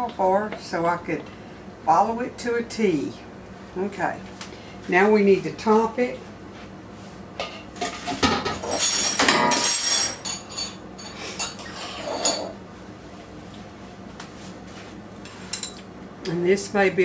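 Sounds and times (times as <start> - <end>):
dishes and utensils clattering: 7.4 - 12.6.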